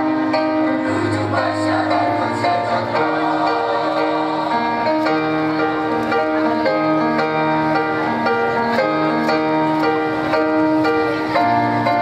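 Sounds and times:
instrumental accompaniment: 0.0 - 12.0
mixed choir singing: 0.7 - 5.8.

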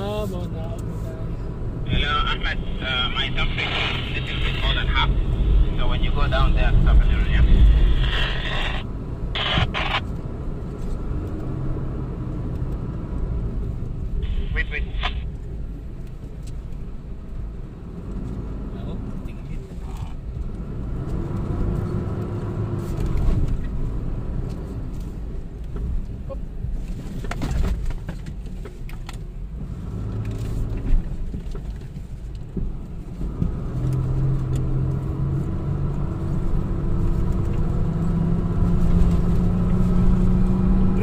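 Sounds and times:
engine revving: 33.5 - 41.0.

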